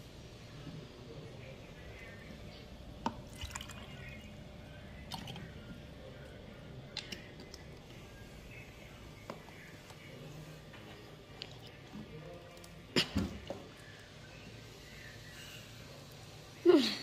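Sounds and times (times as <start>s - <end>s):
water dripping into a mug: 3.0s - 4.2s.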